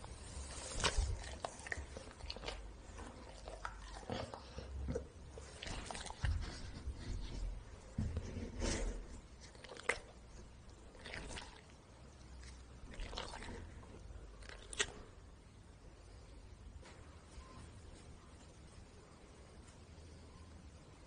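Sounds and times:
jelly balls squishing: 9.2s - 15.2s.

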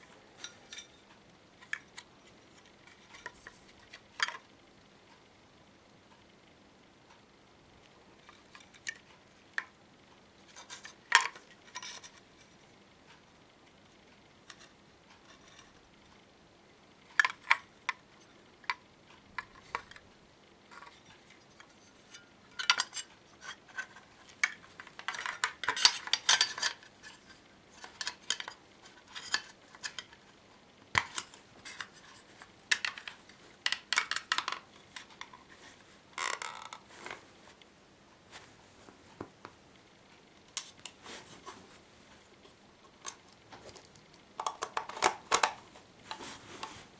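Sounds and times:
hands handling plastic and metal case: 43.0s - 46.8s.

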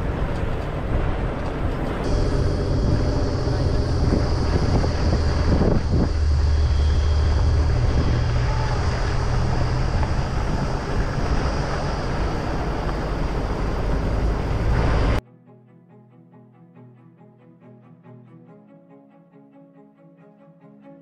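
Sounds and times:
vehicle engine and tyre rumble: 0.0s - 15.2s
wind buffeting microphone: 0.0s - 15.2s
faint string music: 0.0s - 21.0s.

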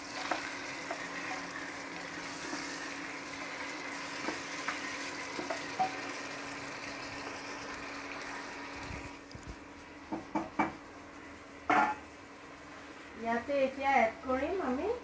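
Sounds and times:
meat sizzling in hot oil: 0.0s - 10.4s.

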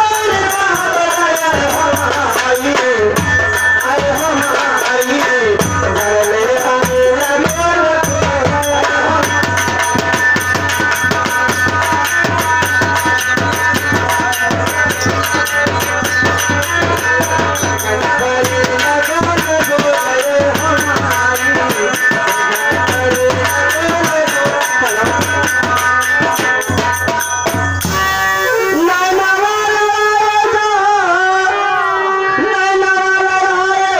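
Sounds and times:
fast drum and tabla percussion: 0.0s - 33.9s
held wavering melody: 3.2s - 30.2s.

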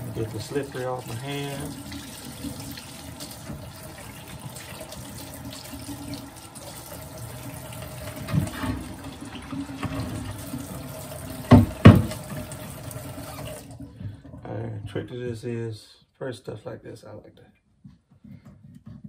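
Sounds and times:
faucet running into metal sink: 0.0s - 13.8s.

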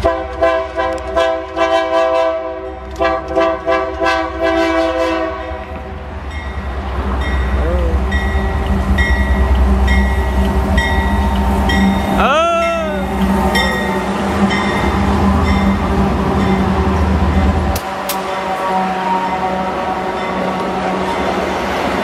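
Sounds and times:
locomotive air horn blasts: 0.0s - 5.7s, 17.8s - 21.1s.

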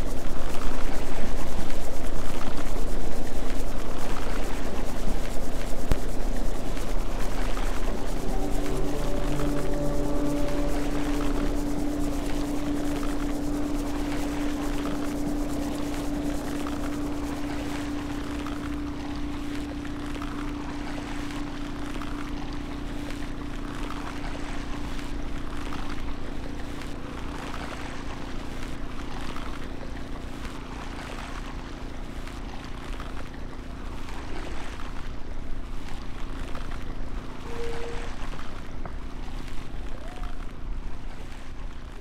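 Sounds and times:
electronic noise texture: 0.0s - 26.9s
low drone tone: 0.0s - 31.5s, 36.8s - 38.7s.

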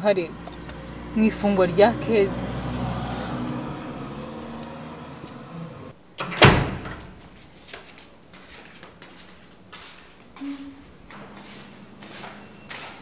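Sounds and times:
low car interior hum: 0.0s - 6.0s.

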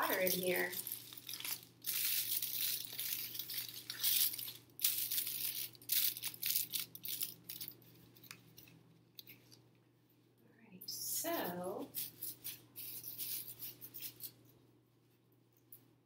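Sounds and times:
aluminum foil crinkling: 0.0s - 9.6s, 11.9s - 14.4s.

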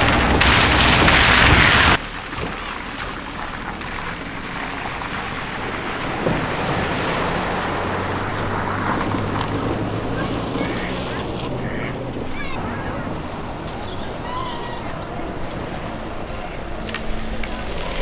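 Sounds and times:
sharp water splash: 0.0s - 11.9s
tyres sloshing through water: 0.0s - 18.0s
water spray rushing: 0.0s - 18.0s
car engine humming low: 2.0s - 18.0s.

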